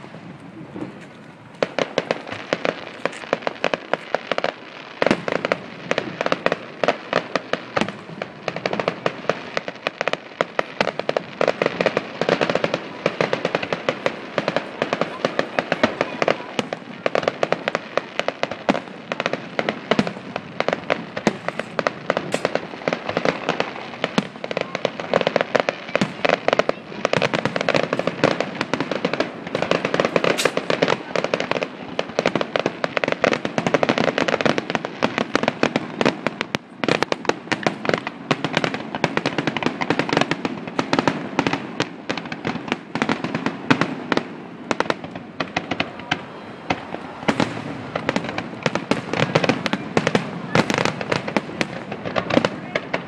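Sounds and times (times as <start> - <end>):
fireworks bangs and crackles: 0.0 - 53.0.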